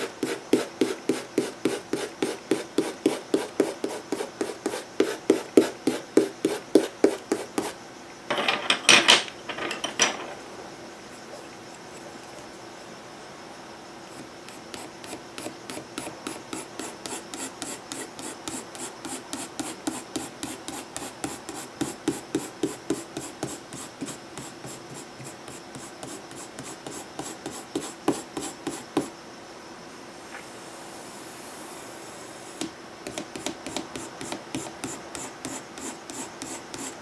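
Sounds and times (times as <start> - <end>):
pencil shading on paper: 0.0 - 7.8, 14.1 - 29.1, 33.1 - 37.0.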